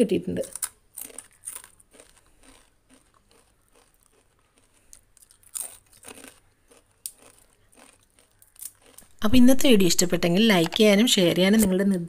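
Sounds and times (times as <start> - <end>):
crunching fried snack: 0.4 - 9.1.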